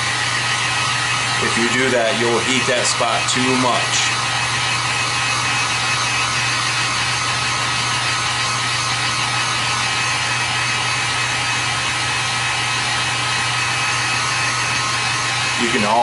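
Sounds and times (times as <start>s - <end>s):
heat gun blowing air: 0.0s - 16.0s.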